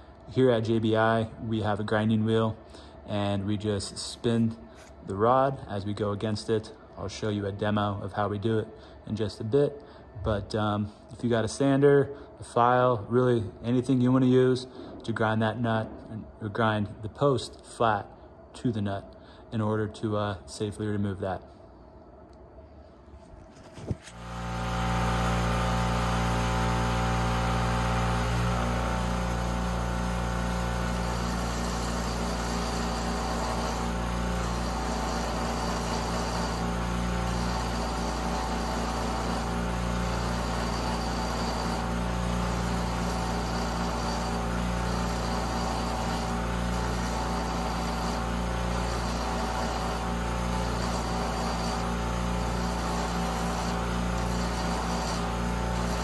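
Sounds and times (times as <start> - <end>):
bench grinder running: 24.1 - 56.0
metal grinding on wheel: 24.2 - 56.0.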